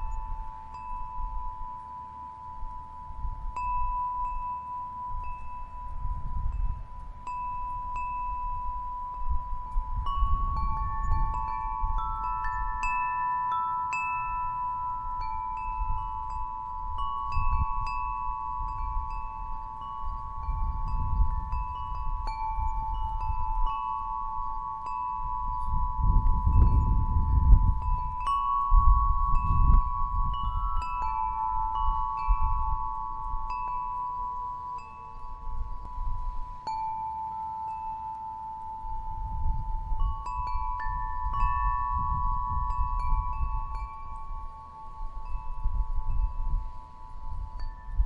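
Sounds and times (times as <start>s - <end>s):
wind chimes ringing: 0.0s - 48.0s.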